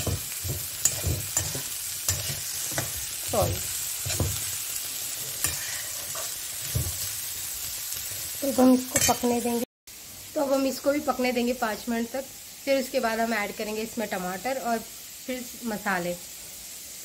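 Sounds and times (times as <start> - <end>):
spatula clanking against pan: 0.0 - 4.5
spatula scraping pan: 0.0 - 7.2
frying sizzle: 0.0 - 17.0.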